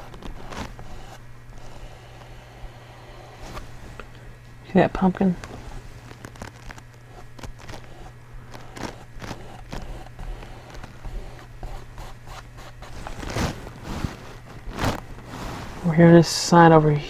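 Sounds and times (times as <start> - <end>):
paintbrush scratching on canvas: 0.0 - 2.5, 5.4 - 15.9.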